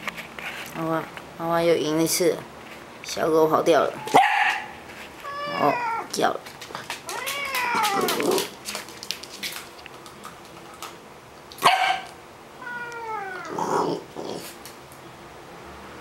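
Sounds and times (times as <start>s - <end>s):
animal yelp: 5.2s - 6.1s, 7.1s - 8.4s.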